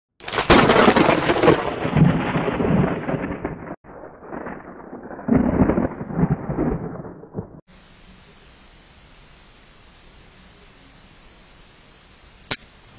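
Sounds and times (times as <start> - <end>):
thunder crack and rumble: 0.2 - 7.7
faint steady hiss: 7.7 - 12.9.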